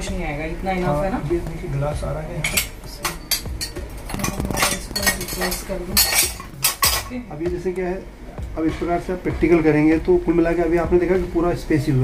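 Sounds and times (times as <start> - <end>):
glasses and cups clinking: 2.4 - 7.2.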